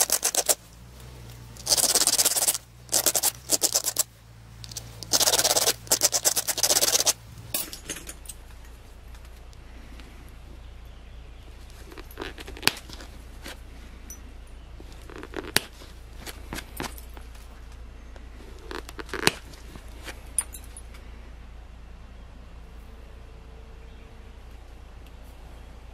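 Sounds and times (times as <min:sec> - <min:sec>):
flaker scratching stone edge: 0:00.0 - 0:00.6, 0:01.5 - 0:07.2.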